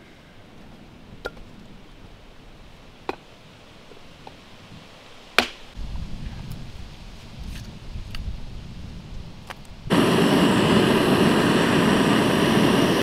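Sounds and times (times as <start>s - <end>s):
low rumbling noise: 5.8s - 13.0s.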